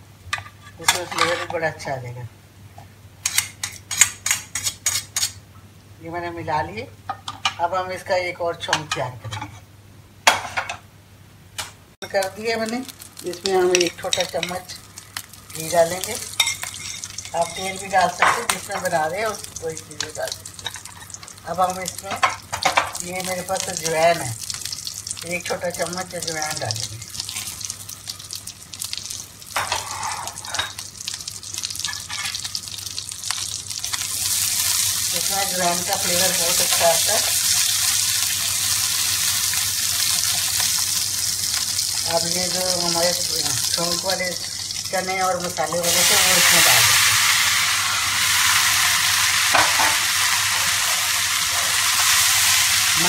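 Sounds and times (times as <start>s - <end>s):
seeds sizzling in hot oil: 12.0s - 53.0s.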